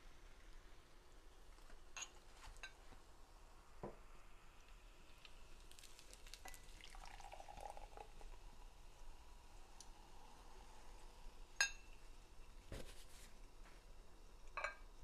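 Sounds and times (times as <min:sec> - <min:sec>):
soda pouring into a glass: 0:03.5 - 0:12.5.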